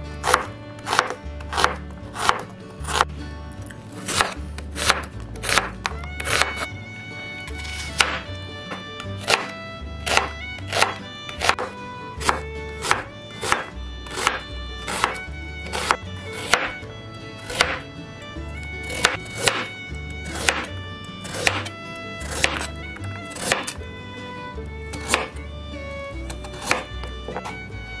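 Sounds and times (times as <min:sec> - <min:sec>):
background music with bass: 0:00.0 - 0:28.0
knife chopping on cutting board: 0:00.2 - 0:03.1, 0:04.0 - 0:06.7, 0:07.5 - 0:16.8, 0:17.4 - 0:17.8, 0:18.8 - 0:19.7, 0:20.3 - 0:23.8, 0:24.9 - 0:25.4, 0:26.3 - 0:27.6.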